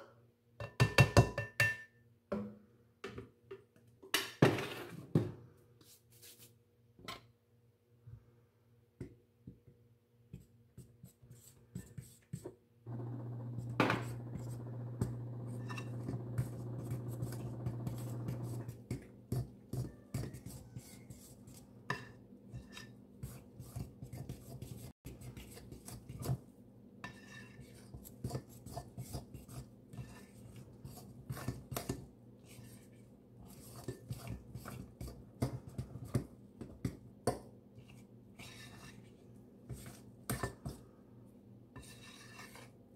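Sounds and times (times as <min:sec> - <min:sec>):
fork scraping ceramic bowl: 0:13.9 - 0:26.4, 0:27.0 - 0:36.2, 0:37.8 - 0:40.8, 0:41.8 - 0:42.8.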